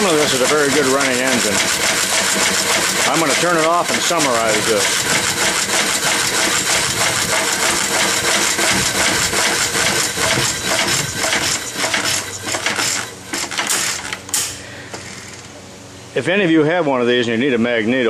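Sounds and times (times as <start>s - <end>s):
single-cylinder engine clattering: 0.0s - 14.4s.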